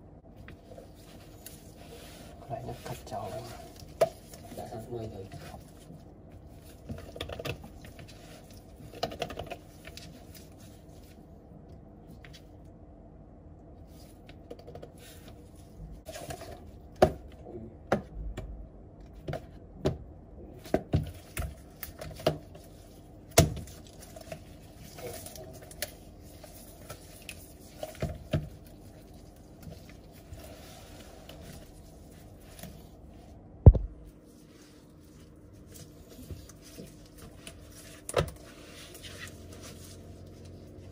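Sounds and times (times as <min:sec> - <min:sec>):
loud thump: 0:33.6 - 0:34.0.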